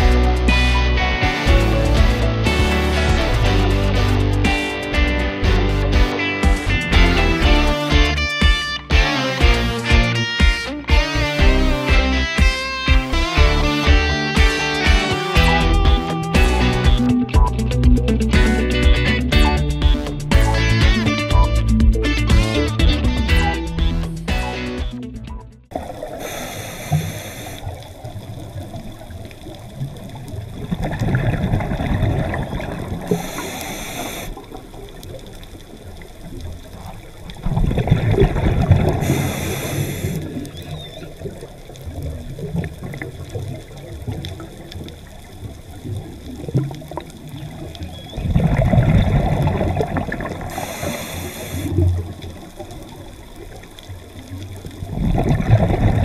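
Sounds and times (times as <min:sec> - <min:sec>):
low water noise: 0:00.0 - 0:56.0
bubbling exhaled air underwater: 0:25.7 - 0:56.0
regulator hiss: 0:25.8 - 0:28.4, 0:33.0 - 0:36.1, 0:38.9 - 0:41.2, 0:50.4 - 0:52.8.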